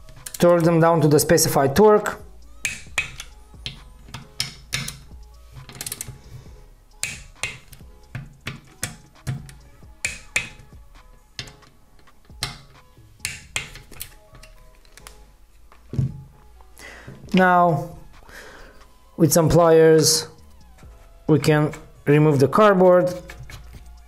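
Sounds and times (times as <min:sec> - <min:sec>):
background music: 0:00.0 - 0:24.0
torque wrench ratchet clicking: 0:02.6 - 0:06.2.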